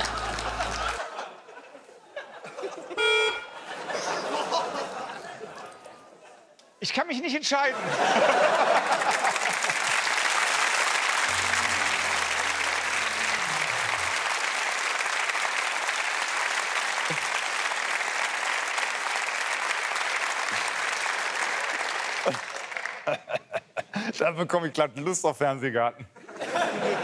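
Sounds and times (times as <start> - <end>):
audience applauding: 0.0 - 1.2, 8.2 - 23.2.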